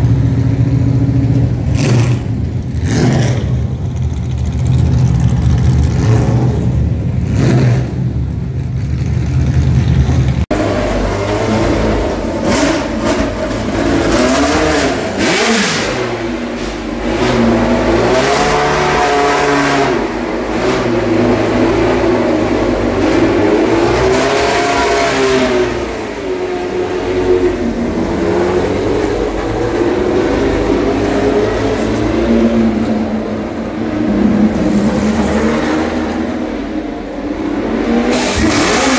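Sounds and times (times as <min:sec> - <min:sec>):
lower steady engine note: 0:00.0 - 0:38.9
racing car engines at high revs: 0:00.0 - 0:38.9.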